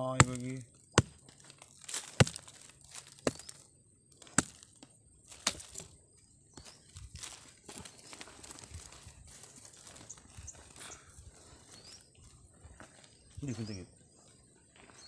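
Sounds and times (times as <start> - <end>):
blade chopping into soil: 0.1 - 3.6, 4.2 - 5.9.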